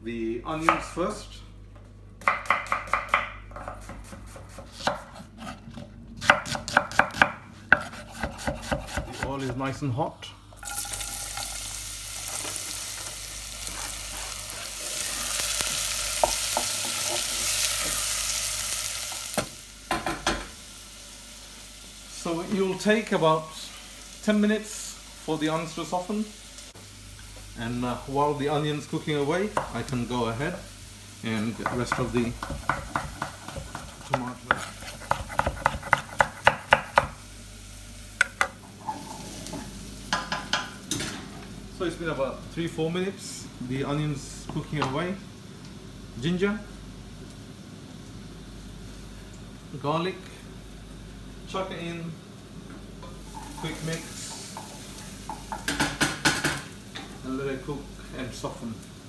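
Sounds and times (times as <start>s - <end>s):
onions sizzling in oil: 10.5s - 41.0s, 45.0s - 59.0s
wooden spoon stirring: 31.6s - 36.3s.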